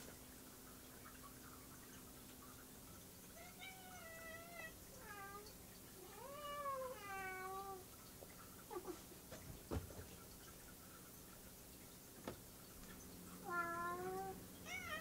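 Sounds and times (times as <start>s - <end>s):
cat meowing: 13.5s - 15.0s.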